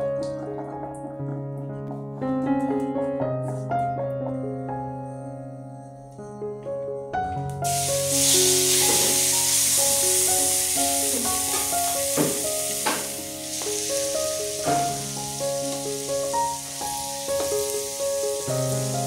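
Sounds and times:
soft piano music: 0.0 - 19.0
fish sizzling in oil: 7.6 - 19.0.

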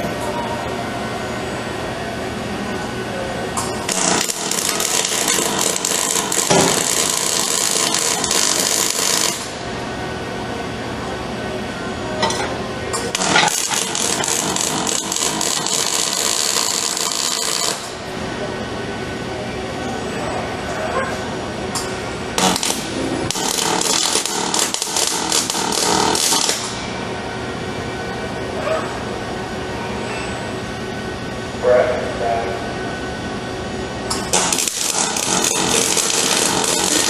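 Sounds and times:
welding arc crackling and hissing: 3.9 - 9.6, 13.1 - 18.0, 22.4 - 26.8, 34.3 - 37.0.

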